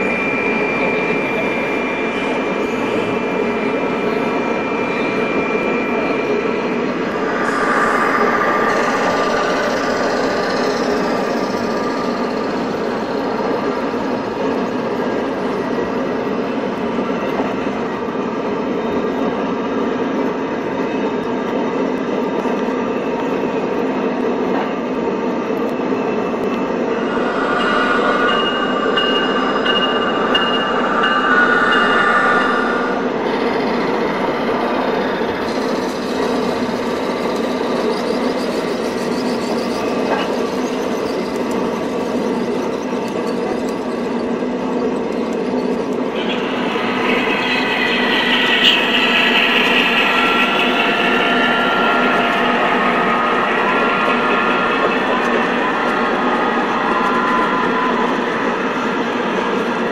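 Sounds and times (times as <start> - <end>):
model train wheels rumbling: 5.7 - 17.5, 26.4 - 58.9.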